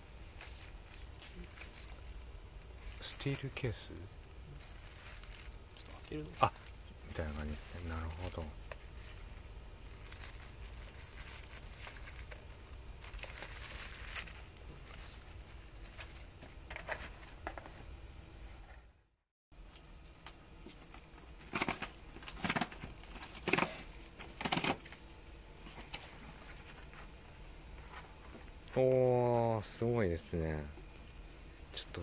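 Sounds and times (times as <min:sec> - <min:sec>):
tissue paper rustling: 0:04.6 - 0:09.3, 0:09.9 - 0:17.4.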